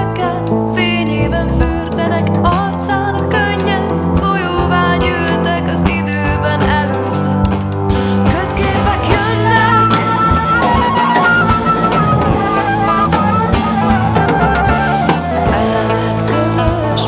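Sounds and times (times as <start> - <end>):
drum kit: 0.0 - 17.0
small band playing: 0.0 - 17.0
high melody line: 8.4 - 17.0.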